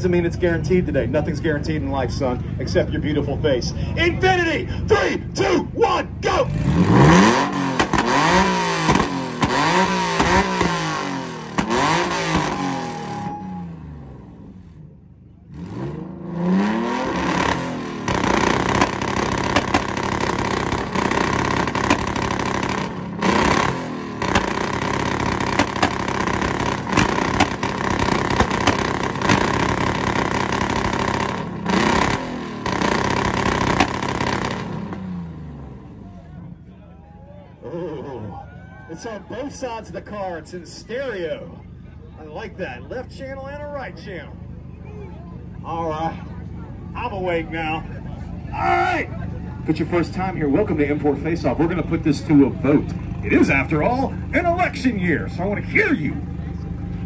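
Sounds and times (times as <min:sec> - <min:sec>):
stuttering exhaust on launch limiter: 0:06.0 - 0:14.9, 0:15.5 - 0:36.2
car engine revving: 0:06.1 - 0:36.5.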